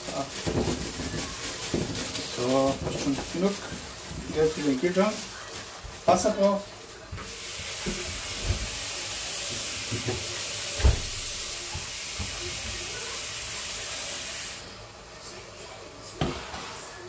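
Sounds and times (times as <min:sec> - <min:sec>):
tap running water into pot: 0:07.2 - 0:14.5.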